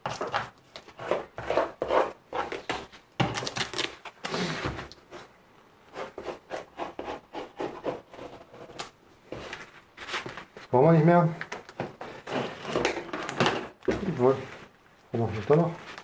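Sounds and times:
pencil scratching: 0.9s - 2.8s, 5.9s - 8.8s, 11.8s - 12.9s.

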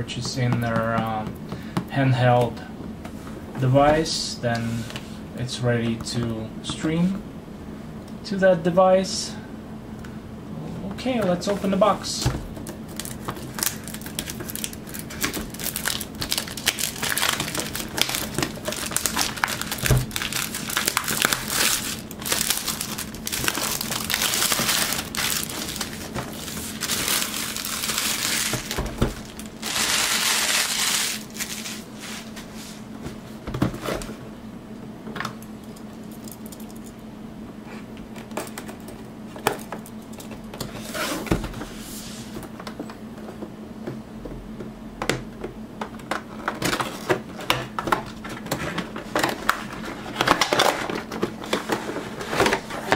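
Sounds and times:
plastic shrink wrap crinkling: 12.6s - 32.4s
cardboard box rustling: 12.9s - 32.4s.

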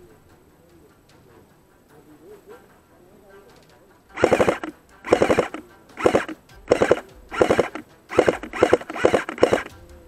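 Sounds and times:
airsoft rifle full-auto bursts: 4.2s - 9.8s.

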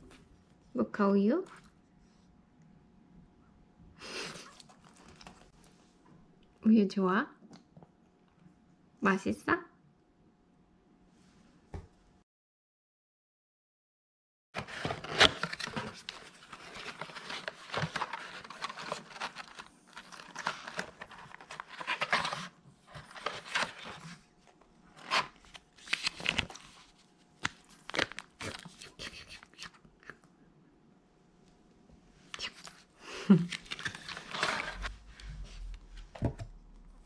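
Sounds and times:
packaging paper crinkling: 14.6s - 24.3s, 24.9s - 29.6s, 33.3s - 34.9s.

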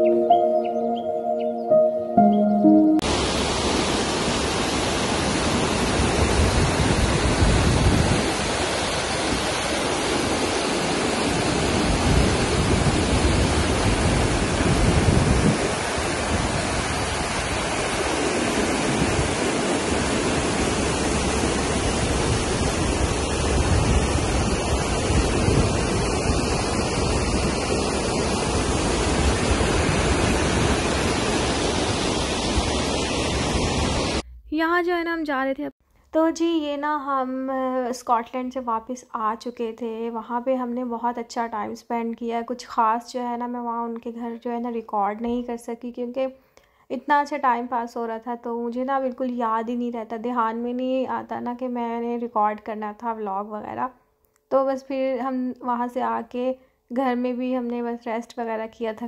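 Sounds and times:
water rushing over weir: 3.0s - 34.2s
wind on microphone: 4.9s - 34.3s.

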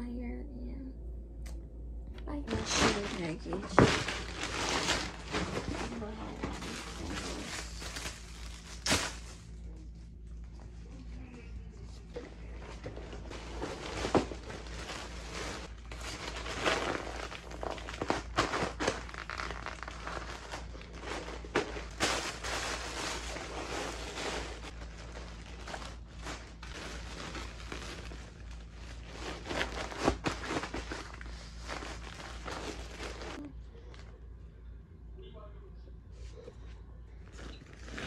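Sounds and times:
plastic bags rustling and crinkling: 2.4s - 10.0s, 12.0s - 34.1s, 37.2s - 38.0s.

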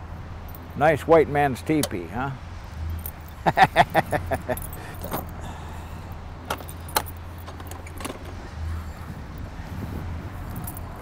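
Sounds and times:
bus door metallic clicks and rattles: 1.7s - 2.0s, 4.4s - 5.4s, 6.4s - 8.6s.

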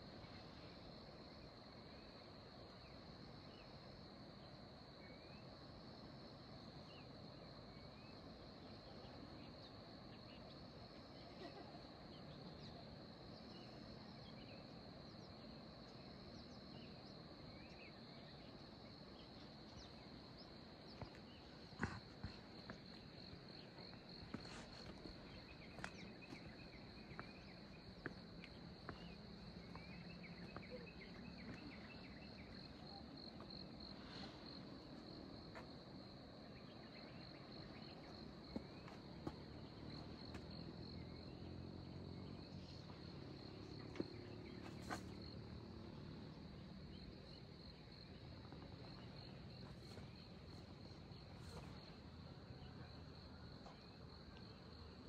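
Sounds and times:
insects trilling: 11.2s - 55.0s.

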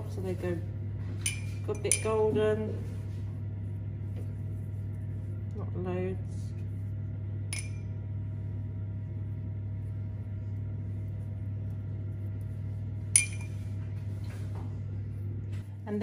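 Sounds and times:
steady low hum: 0.0s - 16.0s
glass jug clinking: 13.2s - 13.6s.

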